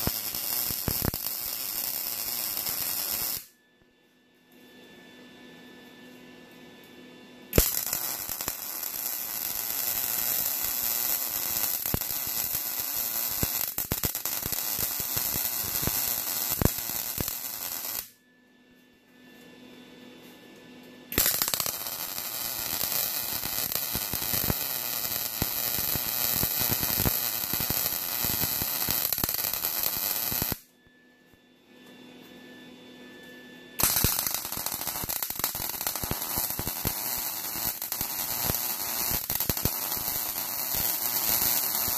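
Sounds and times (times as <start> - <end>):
welder arc crackling: 0.0 - 3.5, 7.6 - 18.2, 21.1 - 30.6, 33.8 - 41.9
faint welder hum: 0.0 - 41.9.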